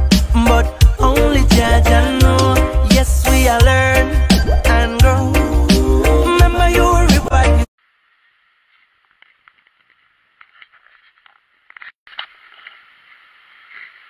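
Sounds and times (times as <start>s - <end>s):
outdoor pool ambience: 7.8s - 14.0s.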